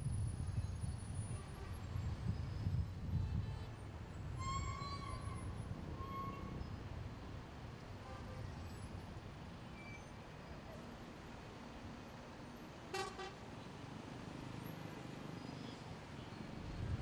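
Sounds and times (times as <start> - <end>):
city road traffic rumble: 0.0 - 17.0
vehicle horn toot: 12.9 - 13.4.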